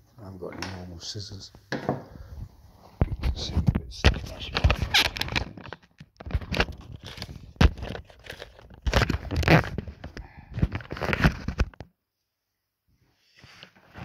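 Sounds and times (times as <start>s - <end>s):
stiff card crinkling: 4.1s - 11.8s.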